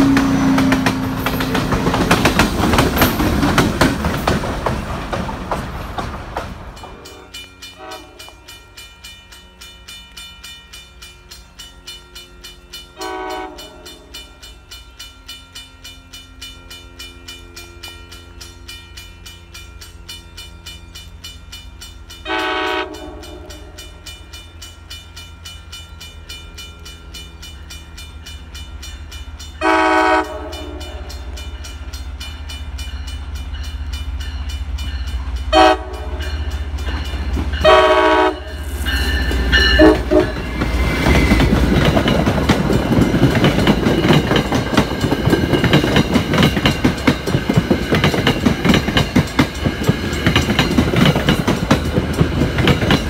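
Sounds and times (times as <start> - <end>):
train horn blasts: 0.0 - 1.6, 6.9 - 9.0, 11.2 - 14.6, 22.2 - 24.1, 29.6 - 31.6, 35.4 - 36.7, 37.6 - 40.6
crossing bell ringing: 0.0 - 5.0, 5.6 - 53.0
wheels clattering over rail joints: 0.0 - 7.2, 38.8 - 53.0
train passing by: 0.0 - 53.0.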